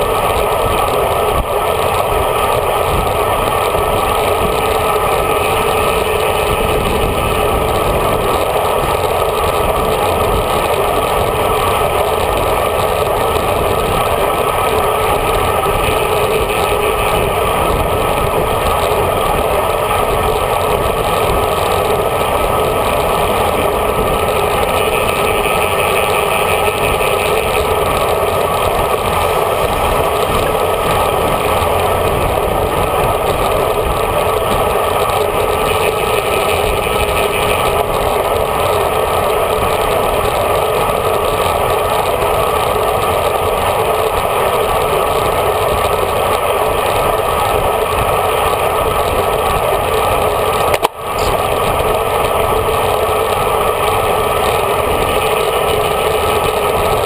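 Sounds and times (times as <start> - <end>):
bicycle tyre hum: 0.0 - 57.0
wind rush: 0.0 - 57.0.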